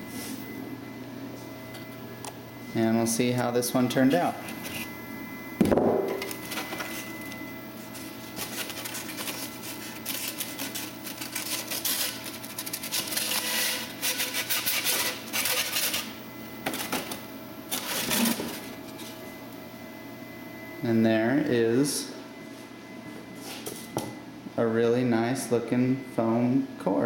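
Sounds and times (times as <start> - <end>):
polystyrene foam crackling: 8.0 - 16.1.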